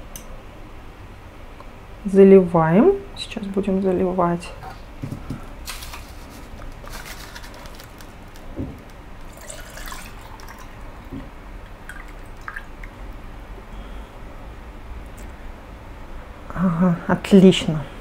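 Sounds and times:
wax dripping and trickling: 0:06.8 - 0:13.1.

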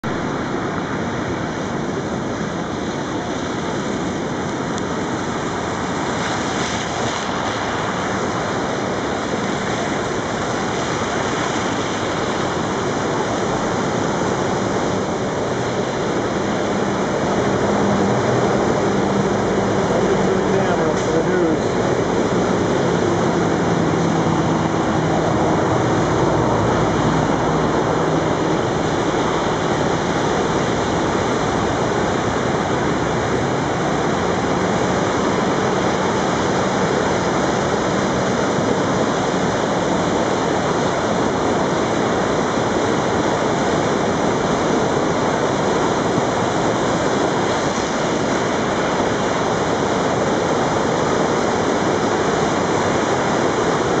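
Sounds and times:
floodwater rushing over rocks: 0:00.0 - 0:54.0.

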